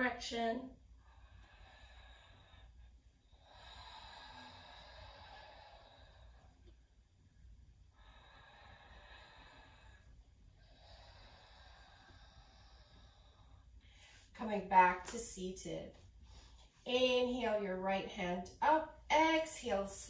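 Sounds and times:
faint slow breathing: 0.8 - 14.4, 16.1 - 16.9.

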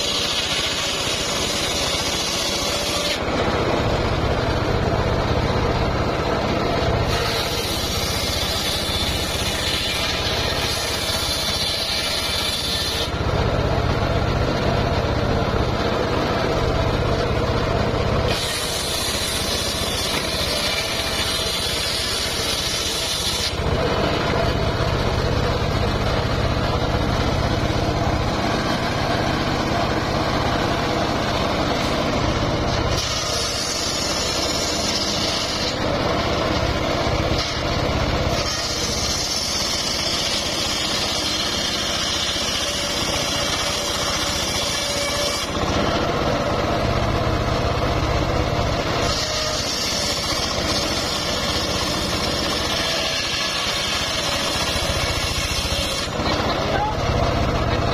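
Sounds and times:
saw blade hissing through wood: 0.0 - 3.3, 6.8 - 13.2, 18.2 - 24.6, 32.8 - 36.5, 37.3 - 46.5, 48.8 - 56.5
saw bench humming: 0.0 - 57.9.

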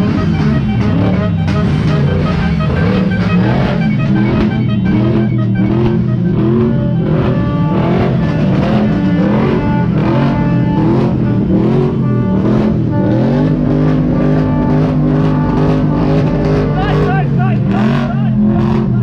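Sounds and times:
car engine revving: 0.0 - 19.0
music playing: 0.0 - 19.0.

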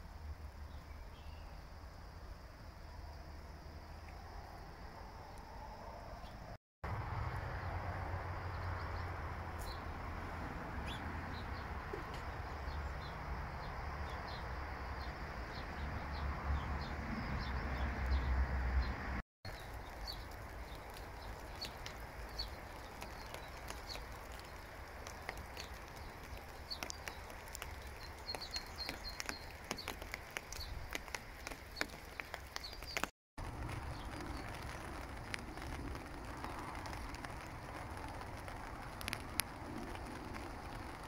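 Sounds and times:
light rain hissing: 0.0 - 18.2, 19.5 - 41.0
small birds chirping: 0.6 - 3.0, 7.3 - 10.0, 10.7 - 37.8
rain drop ticks: 19.4 - 41.0.

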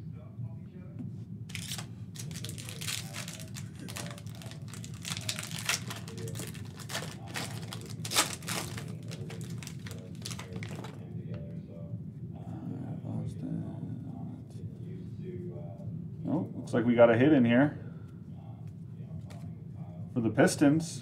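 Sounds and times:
cards shuffled by hand: 1.5 - 11.0
plastic wrapper crinkling: 1.5 - 11.0.

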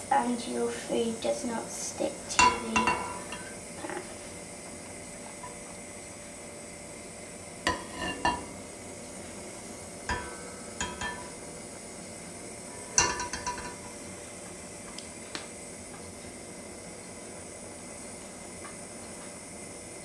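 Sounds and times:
frying pan clinking on hob: 2.4 - 3.5, 10.1 - 11.4, 13.0 - 13.9.

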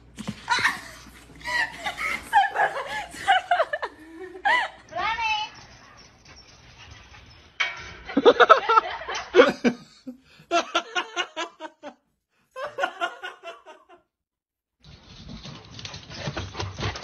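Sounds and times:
person laughing: 0.4 - 4.8, 8.2 - 12.0.

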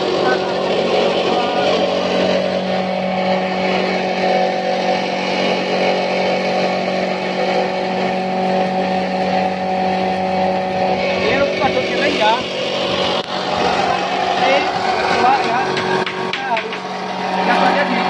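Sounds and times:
chopper machine humming and whining: 0.0 - 18.0.

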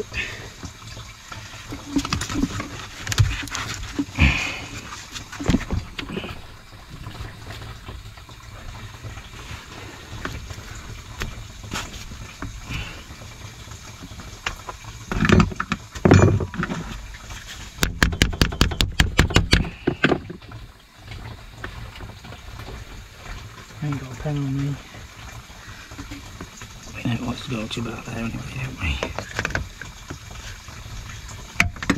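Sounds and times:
plastic pipe knocks and rustling: 1.7 - 4.4, 5.2 - 6.4, 14.4 - 17.0, 17.7 - 20.6, 28.9 - 30.4, 31.5 - 31.9.

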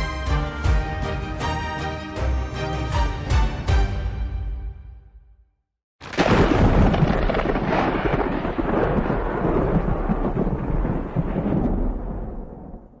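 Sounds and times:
thunder rumbling: 6.0 - 13.0.

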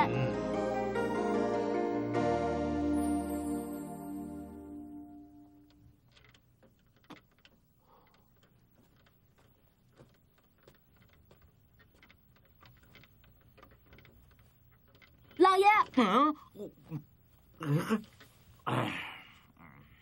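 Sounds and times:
music cue: 0.0 - 5.8
light clicks and ticks: 5.5 - 16.6.

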